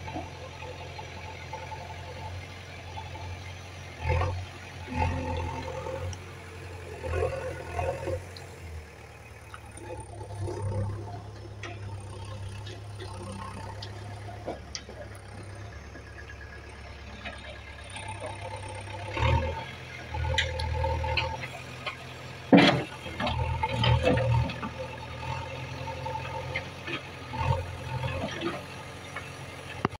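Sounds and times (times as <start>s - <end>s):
diesel engine running under load: 0.0s - 30.0s.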